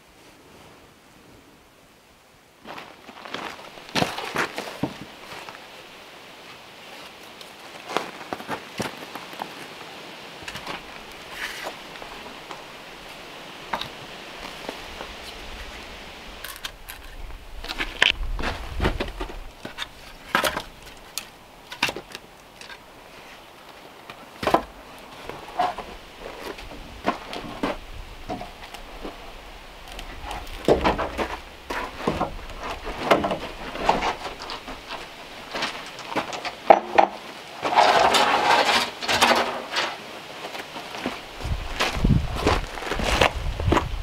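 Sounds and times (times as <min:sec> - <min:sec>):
rough rustling: 0:02.6 - 0:44.0
footsteps on gravel: 0:02.7 - 0:05.6, 0:07.6 - 0:09.8, 0:16.4 - 0:21.2, 0:40.5 - 0:44.0
wooden knocks and clunks: 0:30.2 - 0:39.6.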